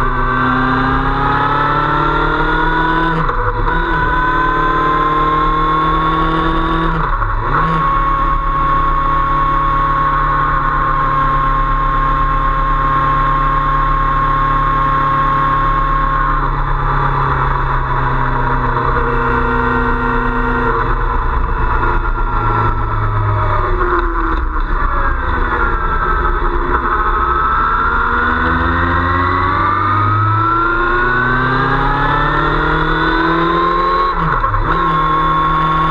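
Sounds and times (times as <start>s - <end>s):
motorcycle engine running: 0.0s - 35.9s.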